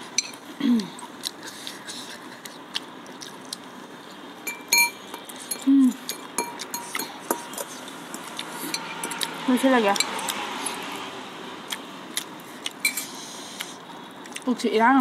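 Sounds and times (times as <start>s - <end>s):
cutlery clinking on glass bowls: 4.5s - 7.7s, 8.7s - 9.2s
person humming mm: 5.6s - 6.0s.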